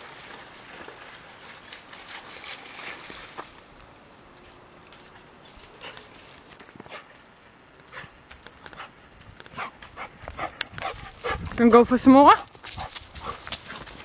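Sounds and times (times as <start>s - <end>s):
dog paw footfalls on dirt: 4.4s - 11.8s, 12.4s - 14.0s.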